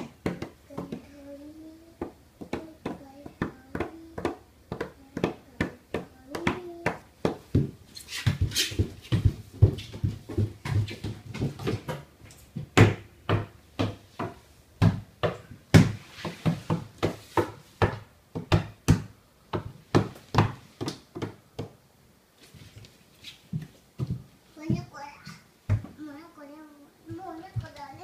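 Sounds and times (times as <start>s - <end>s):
hands and knees slapping wood floor: 0.0s - 1.1s, 2.0s - 21.8s, 22.4s - 24.9s.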